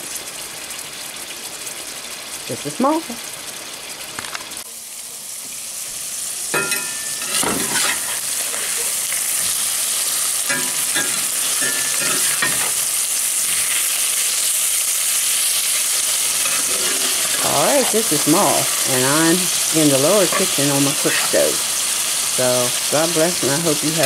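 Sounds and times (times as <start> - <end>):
meat sizzling in a skillet: 0.0 - 24.0
spatula scraping a pan: 6.6 - 14.0, 15.6 - 18.9.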